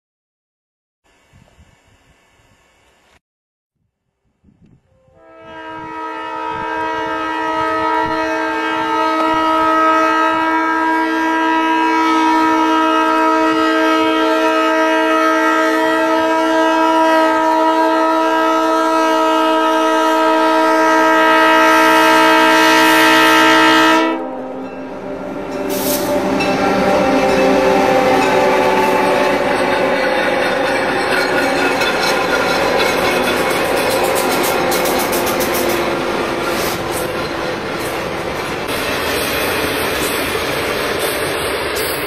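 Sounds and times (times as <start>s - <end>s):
locomotive air horn blast: 4.9s - 37.4s
train wheels clattering on rails: 25.5s - 42.0s.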